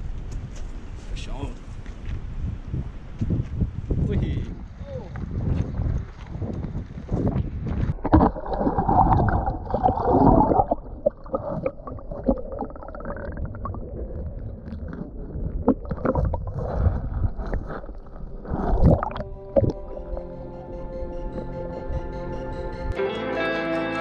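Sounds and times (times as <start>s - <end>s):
water sloshing underwater: 7.1s - 20.7s
soft ambient music: 17.9s - 24.0s.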